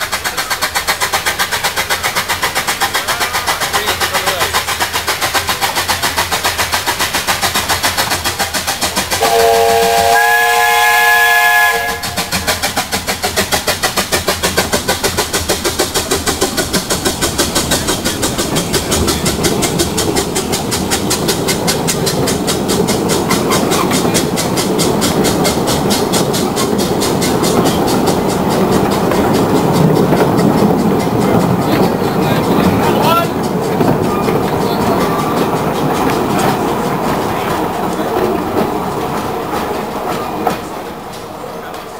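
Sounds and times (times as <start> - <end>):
carriages rumbling on rails: 0.0 - 41.9
steam locomotive chuffing: 0.0 - 41.9
steam whistle blast: 9.2 - 12.1.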